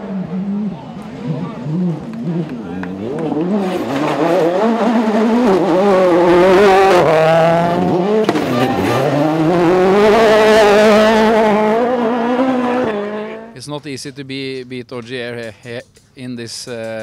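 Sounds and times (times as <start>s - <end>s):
rally car engine revving: 0.0s - 13.6s.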